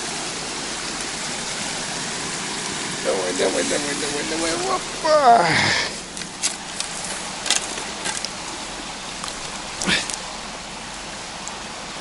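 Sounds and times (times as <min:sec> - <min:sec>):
forest stream rushing: 0:00.0 - 0:12.0
dry twigs crackling and snapping: 0:06.0 - 0:10.3.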